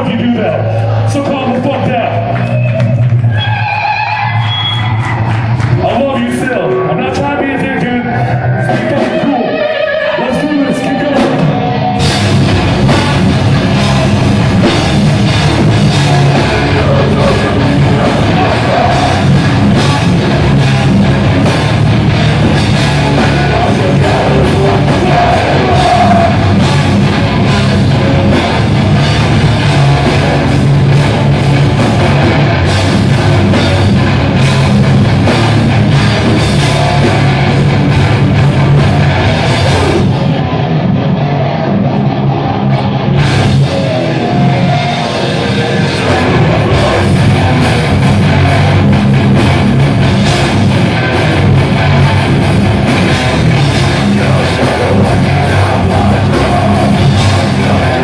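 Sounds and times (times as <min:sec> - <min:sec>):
hardcore metal band playing: 0:00.0 - 0:58.0.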